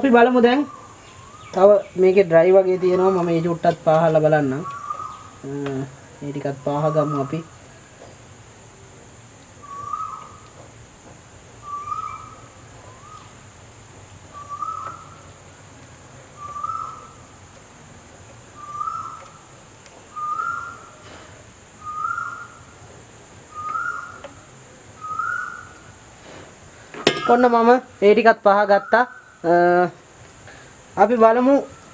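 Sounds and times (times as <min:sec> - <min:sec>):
bird whistled call: 0:00.6 - 0:01.9, 0:04.6 - 0:05.4, 0:09.6 - 0:10.5, 0:11.6 - 0:13.4, 0:14.3 - 0:15.3, 0:16.4 - 0:17.2, 0:18.6 - 0:19.4, 0:20.1 - 0:21.0, 0:21.8 - 0:22.7, 0:23.5 - 0:24.4, 0:25.0 - 0:25.9.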